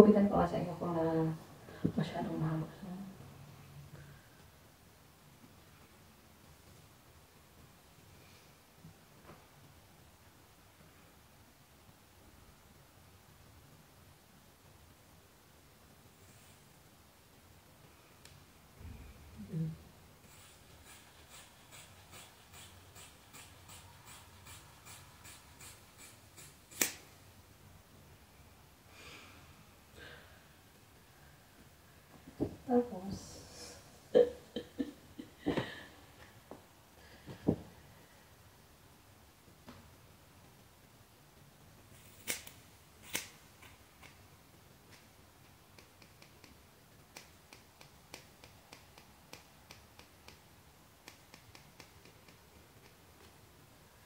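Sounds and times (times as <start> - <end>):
scissors snipping hair: 20.3 - 27.0, 42.0 - 43.3, 51.0 - 53.0.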